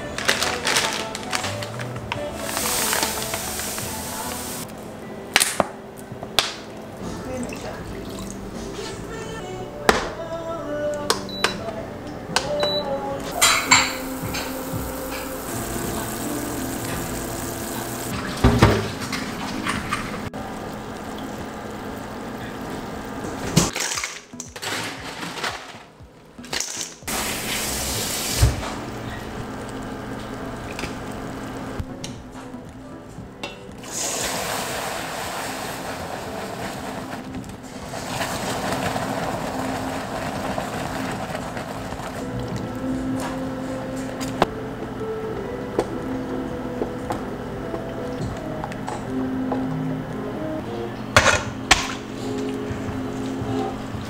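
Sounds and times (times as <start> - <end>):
caramel hissing and bubbling: 1.6 - 4.7, 13.3 - 23.7, 27.1 - 31.8, 33.8 - 43.0
syrup boiling in a pot: 2.3 - 4.7, 13.4 - 23.7, 33.8 - 42.7.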